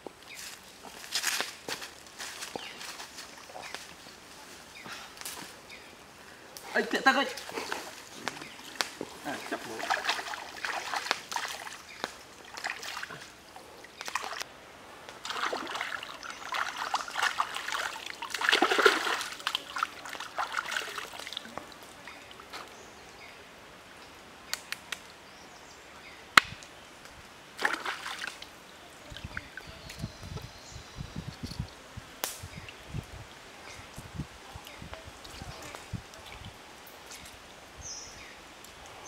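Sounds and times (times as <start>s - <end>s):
stream flowing: 2.0s - 24.4s, 27.4s - 30.0s
water splashing and sloshing: 7.3s - 14.5s, 15.1s - 22.5s, 27.5s - 28.5s.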